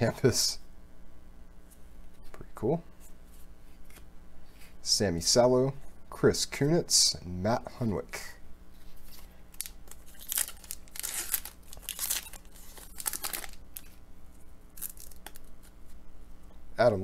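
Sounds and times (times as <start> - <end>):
foil wrapper ripping and crinkling: 9.5 - 14.0, 14.8 - 15.8.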